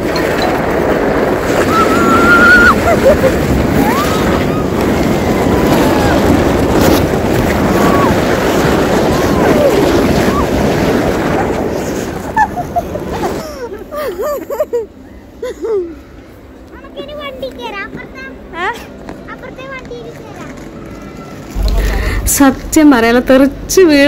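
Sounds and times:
wind rushing on microphone: 0:00.0 - 0:13.4.

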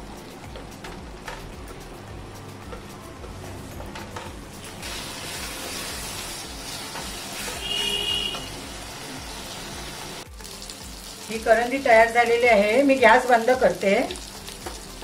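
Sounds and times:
shrimp sizzling in a pan: 0:04.6 - 0:15.0.

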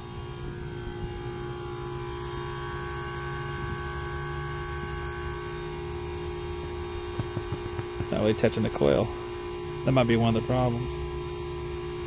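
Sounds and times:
heat pump compressor hum: 0:00.0 - 0:12.0.

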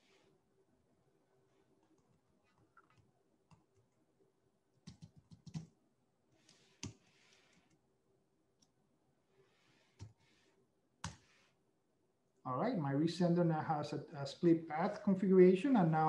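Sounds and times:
keyboard typing: 0:04.8 - 0:05.7.

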